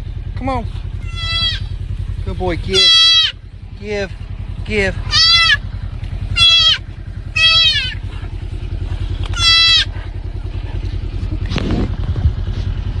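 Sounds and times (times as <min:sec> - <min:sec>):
engine idling: 0:00.0 - 0:13.0
fawn bleating in distress: 0:01.0 - 0:01.8, 0:02.5 - 0:03.5, 0:05.0 - 0:05.7, 0:06.3 - 0:08.1, 0:09.3 - 0:10.0.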